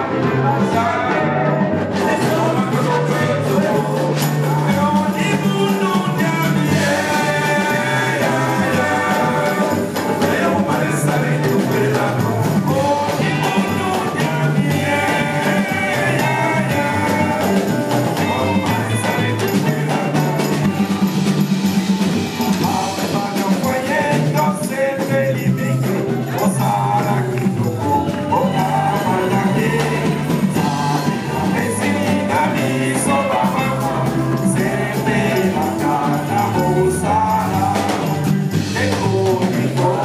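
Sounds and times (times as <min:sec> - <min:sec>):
bass line: 0:00.0 - 0:40.0
electric guitar: 0:00.0 - 0:40.0
live band music through a pa: 0:00.0 - 0:40.0
person singing: 0:00.0 - 0:40.0.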